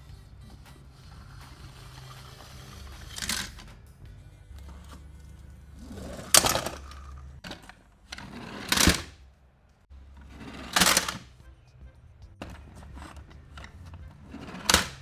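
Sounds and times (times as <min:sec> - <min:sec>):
toy trucks rattling and scraping: 0:00.0 - 0:03.8, 0:04.4 - 0:09.2, 0:09.9 - 0:15.0.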